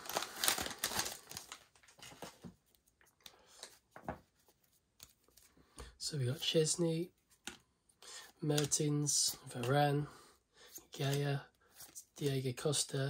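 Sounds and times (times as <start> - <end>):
wrapper crinkling and tearing: 0.0 - 2.4
cards clicking and tapping: 7.3 - 7.7, 8.3 - 8.9, 10.8 - 12.4.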